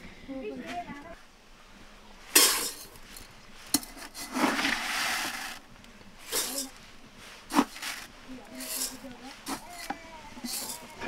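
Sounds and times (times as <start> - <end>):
rice pouring into metal pot: 4.2 - 5.6.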